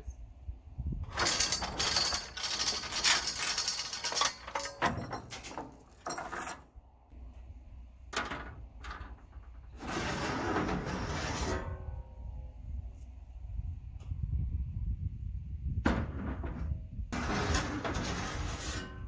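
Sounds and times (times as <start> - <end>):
metal clinking and rattling: 1.0 - 6.8.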